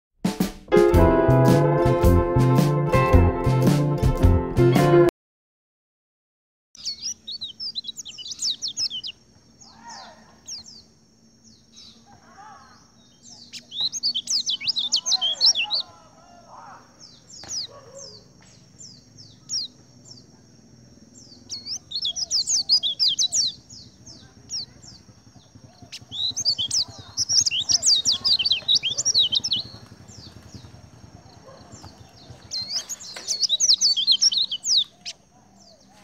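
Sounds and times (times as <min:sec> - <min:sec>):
high bird chirps: 0:06.8 - 0:20.4, 0:21.1 - 0:36.0
birds twittering: 0:06.8 - 0:36.0.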